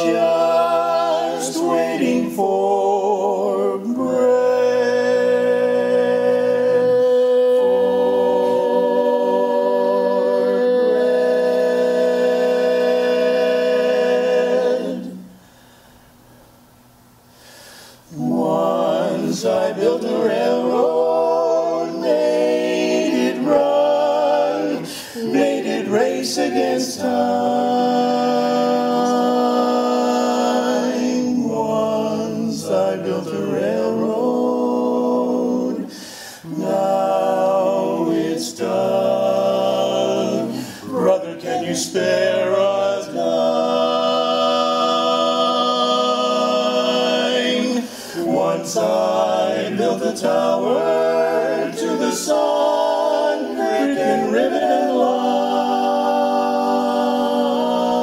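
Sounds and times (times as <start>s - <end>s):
vocal quartet singing a cappella: 0.0s - 16.4s, 17.3s - 58.0s.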